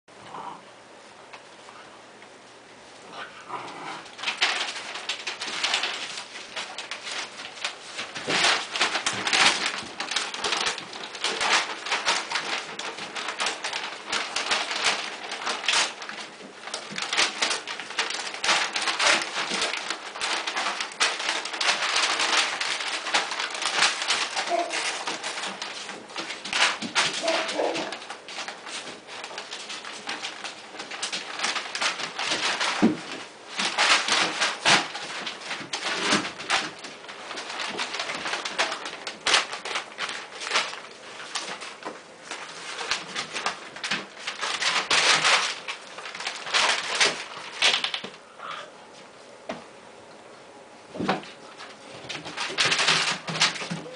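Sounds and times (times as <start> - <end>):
paper crinkling and rustling: 3.3 - 48.2, 50.9 - 53.9
puppy vocalizations: 27.2 - 28.0.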